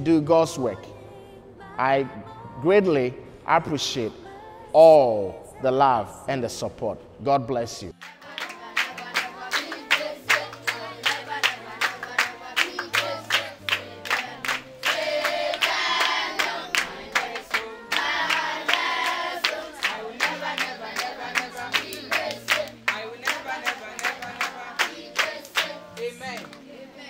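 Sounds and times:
rhythmic hand claps: 0:08.0 - 0:26.8
children singing: 0:08.0 - 0:27.0.

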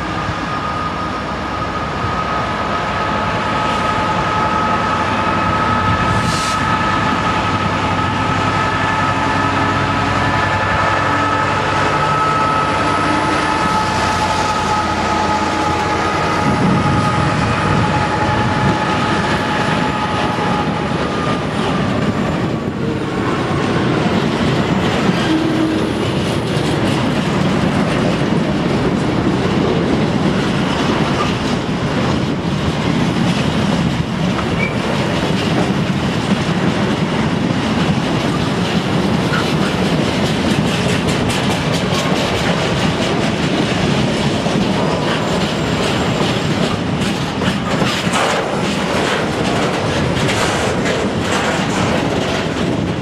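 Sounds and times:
diesel locomotive passing: 0:00.0 - 0:53.0
wheels clattering over rail joints: 0:18.6 - 0:53.0.

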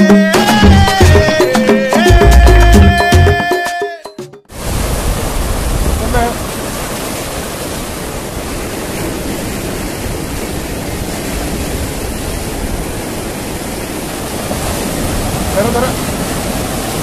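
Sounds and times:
surf breaking over rocks: 0:04.5 - 0:17.0.

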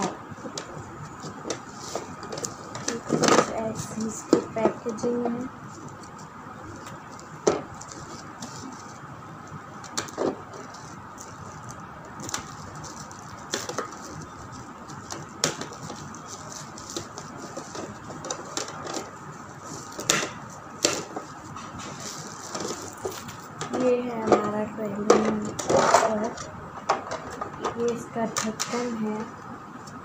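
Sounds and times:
bubble wrap crinkling and rustling: 0:00.0 - 0:26.5
bubble wrap crackles and snaps: 0:05.7 - 0:23.6.

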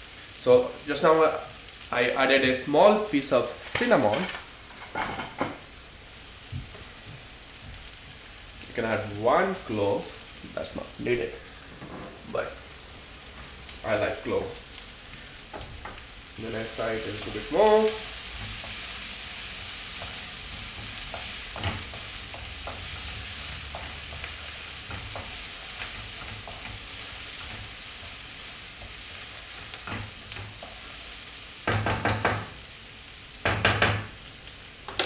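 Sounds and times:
food sizzling in a pan: 0:00.0 - 0:35.0
wooden spatula scraping and tapping: 0:19.9 - 0:27.8.

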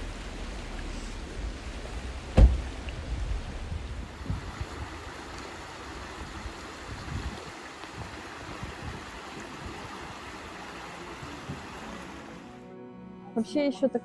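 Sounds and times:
stream rushing over stones: 0:00.0 - 0:12.5
wind buffeting microphone: 0:01.4 - 0:10.5.

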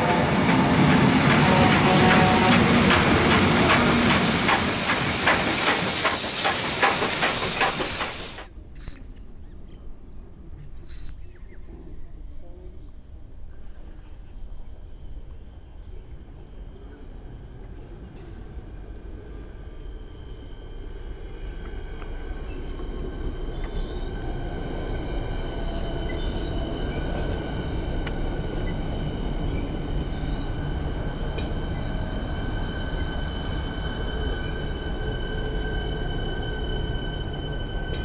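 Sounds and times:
electric train running past: 0:00.0 - 0:08.5, 0:14.7 - 0:38.0
wheels clicking on rails: 0:00.0 - 0:08.5.

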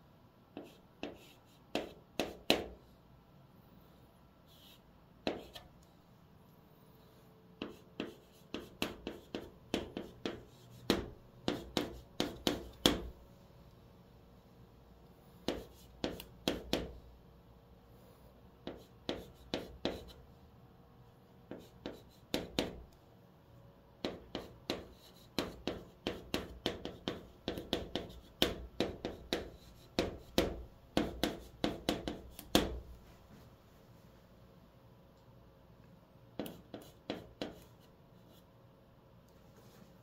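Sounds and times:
chalk tapping and scratching: 0:00.5 - 0:02.8, 0:04.5 - 0:05.7, 0:07.6 - 0:13.2, 0:15.4 - 0:17.0, 0:18.6 - 0:20.2, 0:21.4 - 0:22.9, 0:24.0 - 0:33.2, 0:36.4 - 0:38.5.

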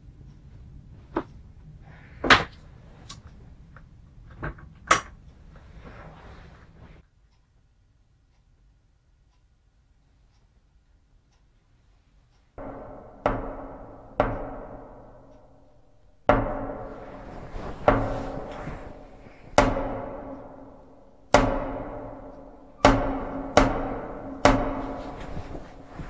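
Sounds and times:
loud booming bangs: 0:12.6 - 0:26.0.

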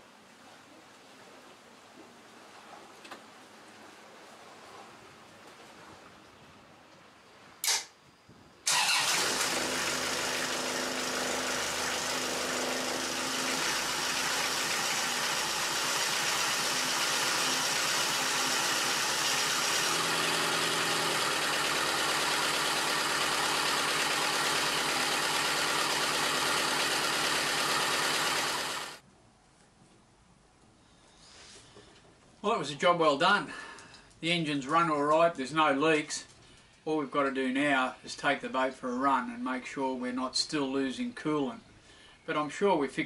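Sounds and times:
diesel engine running: 0:08.7 - 0:29.0.

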